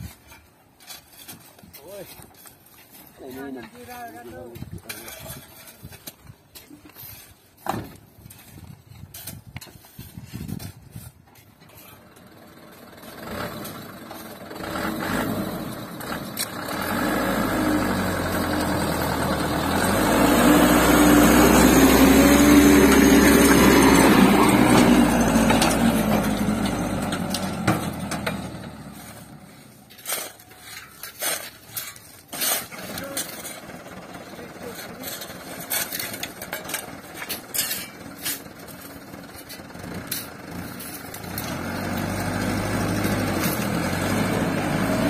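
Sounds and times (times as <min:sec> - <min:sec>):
diesel truck engine revving: 0:12.3 - 0:29.6, 0:32.8 - 0:45.0.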